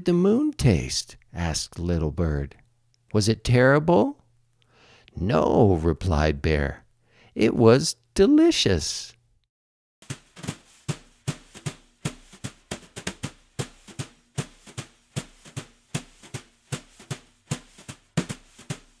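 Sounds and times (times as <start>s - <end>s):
steady drum beat: 10.0s - 19.0s.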